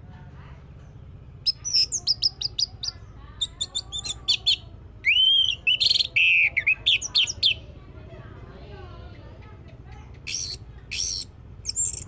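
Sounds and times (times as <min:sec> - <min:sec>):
thrush singing: 0:01.4 - 0:07.7.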